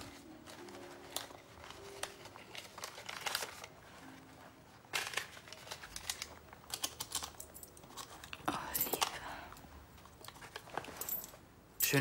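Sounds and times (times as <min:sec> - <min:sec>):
paper rustling and crinkling: 0:00.0 - 0:08.4, 0:10.0 - 0:11.2.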